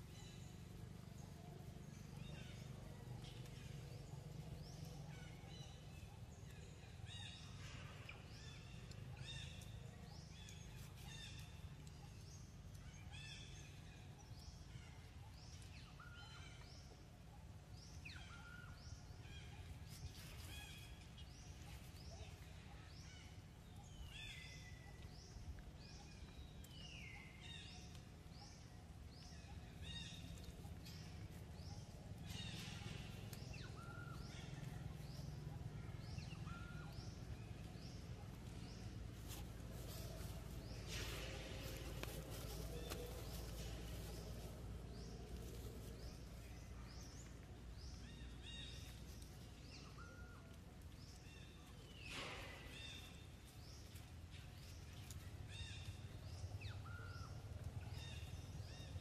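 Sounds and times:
birds chirping: 0.0s - 59.0s
steady low rumble: 17.0s - 59.0s.

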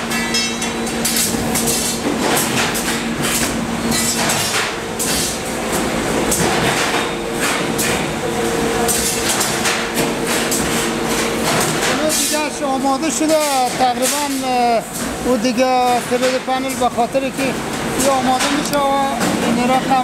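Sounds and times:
steady electrical hum: 0.0s - 20.0s
spot welder cracks and clacks: 13.2s - 14.6s, 18.0s - 19.0s.

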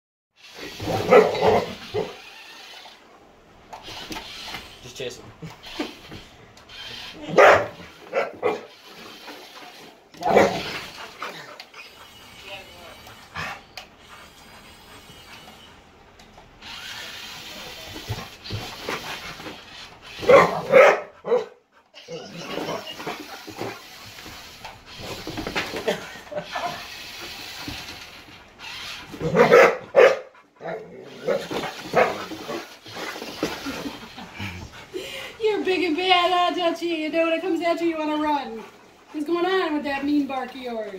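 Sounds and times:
dog barking: 1.0s - 2.1s, 7.3s - 8.7s, 20.2s - 21.6s, 29.2s - 32.2s.

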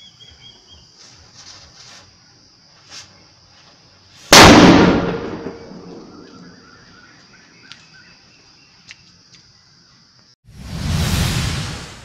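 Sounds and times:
firecracker bang: 4.3s - 6.2s.

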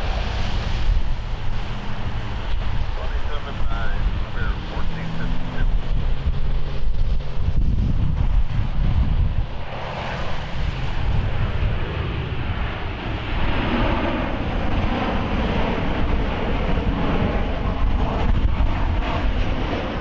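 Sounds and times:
jet engines roaring: 0.0s - 20.0s
wind rumbling on microphone: 0.0s - 20.0s.

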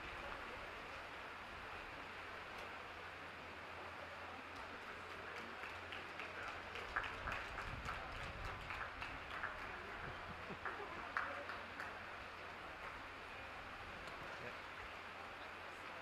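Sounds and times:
crowd applause: 4.3s - 13.3s.

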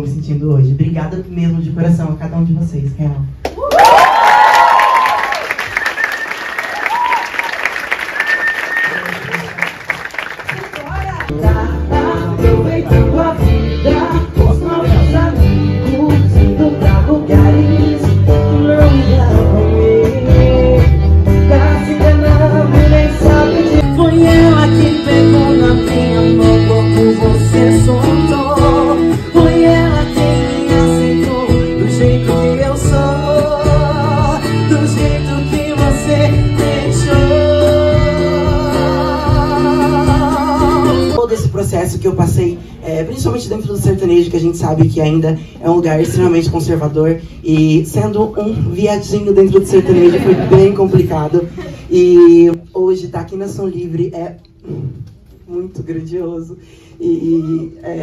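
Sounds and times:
accordion: 11.4s - 41.3s.

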